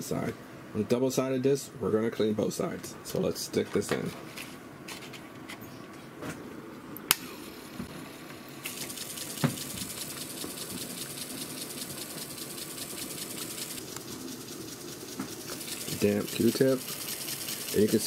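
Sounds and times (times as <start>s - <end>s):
floppy drive whirring: 7.0s - 18.0s.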